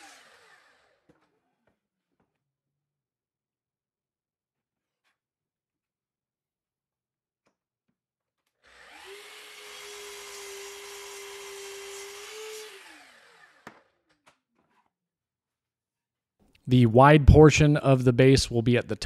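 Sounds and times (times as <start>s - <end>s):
saw winding down whine: 0.0s - 1.1s, 8.6s - 13.9s
miter saw cutting wood: 0.0s - 1.3s, 8.6s - 14.0s.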